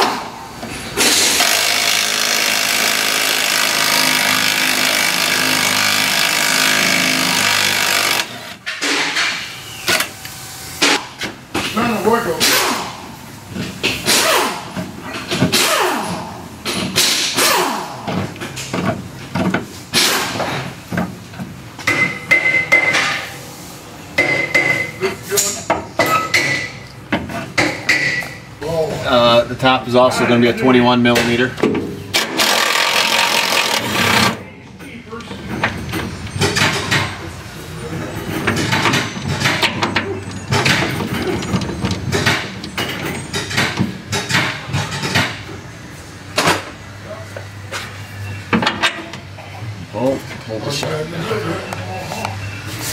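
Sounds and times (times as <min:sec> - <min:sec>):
metal clicks and clanks: 0:38.2 - 0:45.4.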